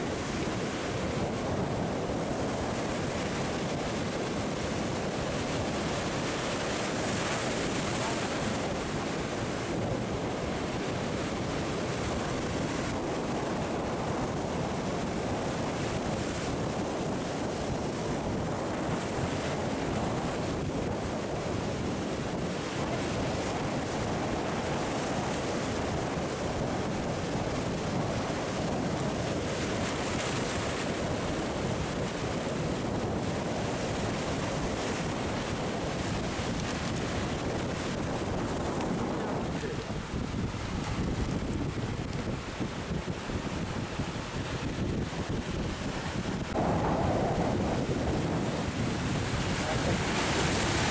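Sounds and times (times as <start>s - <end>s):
sea surf breaking over rocks: 0.0s - 50.9s.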